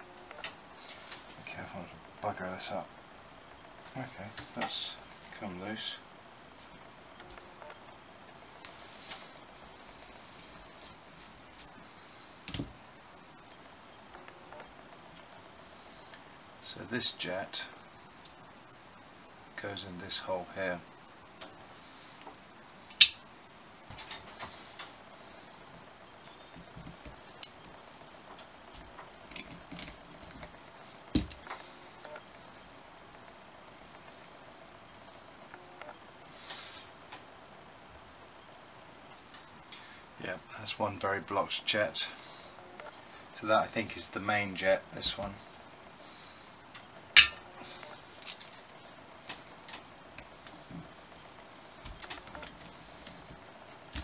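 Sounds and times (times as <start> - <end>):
small metal parts clicking: 29.3 - 30.5, 48.2 - 48.6.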